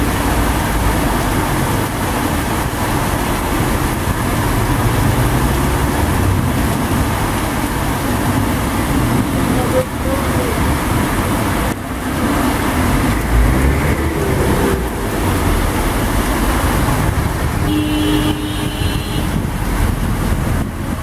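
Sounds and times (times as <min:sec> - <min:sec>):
rain: 0:00.0 - 0:21.0
tyres swishing through water: 0:00.0 - 0:21.0
car horn: 0:17.6 - 0:19.5.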